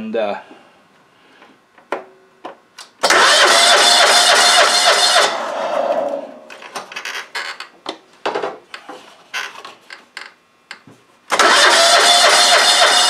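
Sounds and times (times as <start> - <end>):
lawn mower engine running: 3.0 - 5.8, 11.4 - 13.0.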